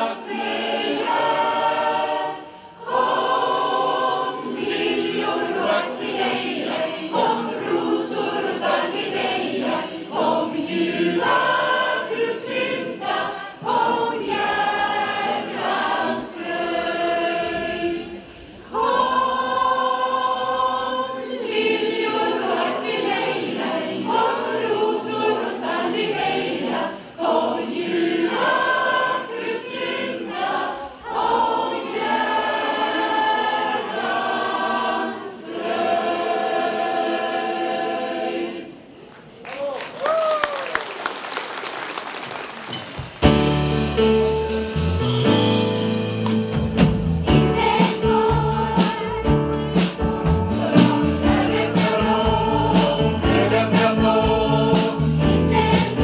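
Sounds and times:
mixed choir singing: 0:00.0 - 0:39.0, 0:47.2 - 0:56.0.

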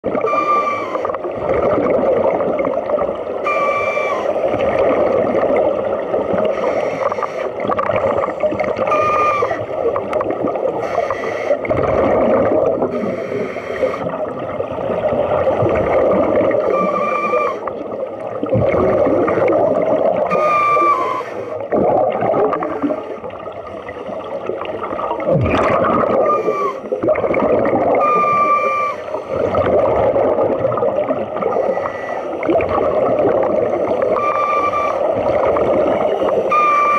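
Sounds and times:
gurgling exhaust bubbles: 0:01.1 - 0:03.4, 0:11.6 - 0:13.1, 0:14.0 - 0:16.9, 0:17.6 - 0:20.4, 0:21.6 - 0:26.3, 0:26.9 - 0:28.1, 0:29.3 - 0:31.7, 0:32.4 - 0:34.3
regulator inhale hiss: 0:06.4 - 0:07.6, 0:10.8 - 0:11.7, 0:12.9 - 0:14.2, 0:20.3 - 0:21.6, 0:31.5 - 0:32.4.

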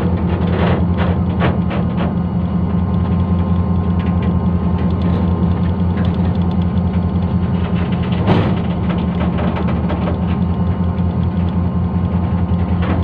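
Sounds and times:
train wheels clicking and clanking: 0:00.0 - 0:02.2, 0:03.0 - 0:13.0
diesel locomotive engine humming: 0:00.0 - 0:13.0
sharp clatter: 0:03.0 - 0:11.6.

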